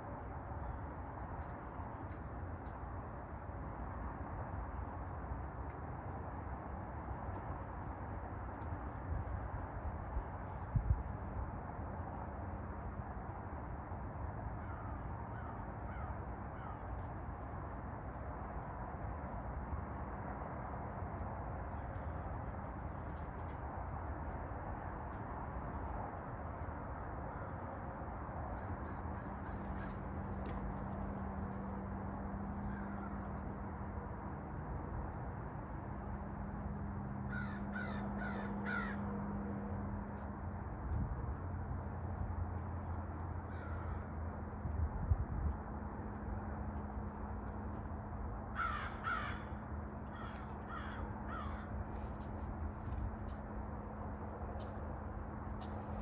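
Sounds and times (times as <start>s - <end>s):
outdoor background rumble: 0.0s - 56.0s
bird cawing: 14.6s - 16.8s, 32.6s - 33.3s, 37.3s - 39.1s, 43.4s - 44.2s, 48.5s - 51.9s
faint bird calls: 48.6s - 51.7s.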